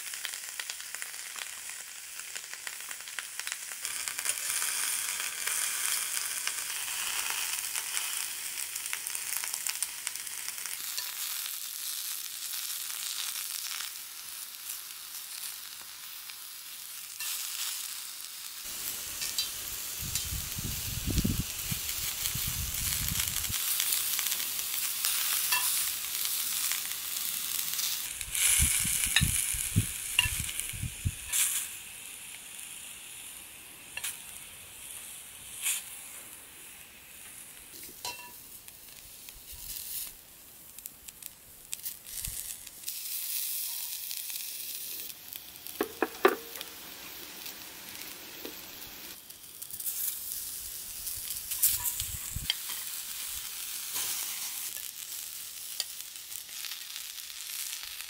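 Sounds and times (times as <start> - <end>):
vegetables sizzling in a skillet: 0.0 - 58.0
metal tongs clicking on pan: 19.2 - 20.3, 25.4 - 25.8, 38.0 - 38.4
wind rumble on microphone: 20.0 - 23.6, 28.2 - 31.3, 51.9 - 52.5.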